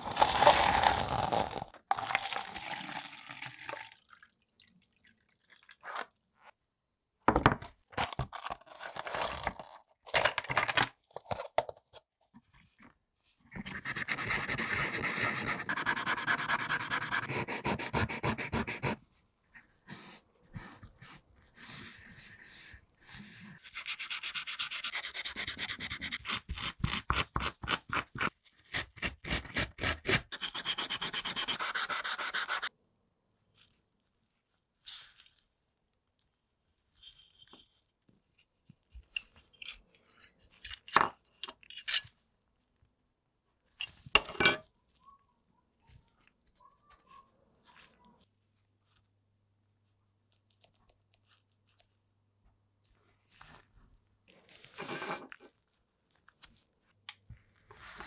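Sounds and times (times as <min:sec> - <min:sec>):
liquid pouring into plastic cup: 0:00.0 - 0:06.2.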